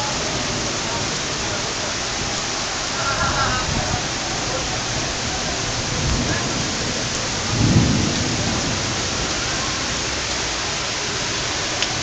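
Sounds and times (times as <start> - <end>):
heavy rain downpour: 0.0 - 12.0
low rumble of thunder: 3.2 - 10.1.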